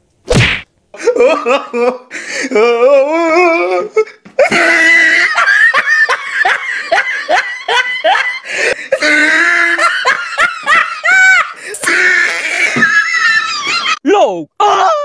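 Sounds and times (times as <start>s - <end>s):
high-pitched human laughter: 4.4s - 14.0s.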